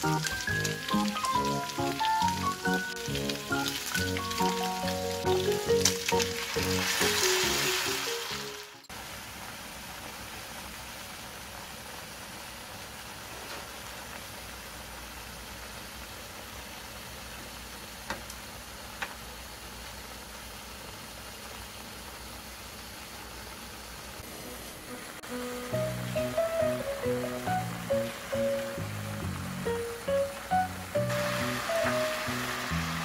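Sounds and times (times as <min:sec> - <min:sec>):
background music: 0:00.0 - 0:08.9, 0:24.3 - 0:33.0
sauce sizzling in hot pan: 0:00.0 - 0:33.0.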